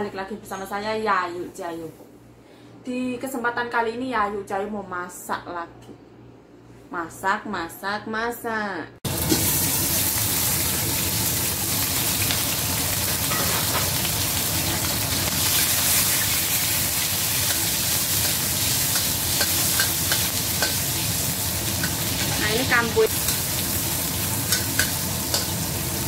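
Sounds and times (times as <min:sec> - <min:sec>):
scallions sizzling in hot oil: 0:09.1 - 0:26.0
ladle tapping wok: 0:17.4 - 0:21.1, 0:24.5 - 0:25.6.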